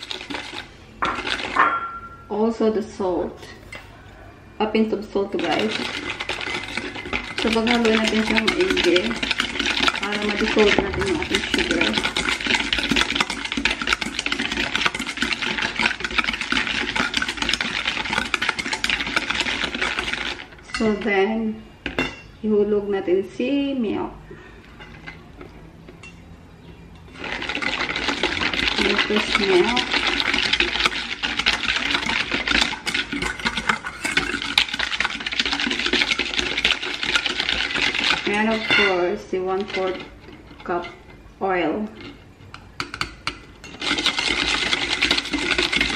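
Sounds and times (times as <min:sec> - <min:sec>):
whisk beating in metal bowl: 0:00.0 - 0:02.2, 0:05.0 - 0:21.1, 0:27.1 - 0:41.1, 0:41.9 - 0:45.9.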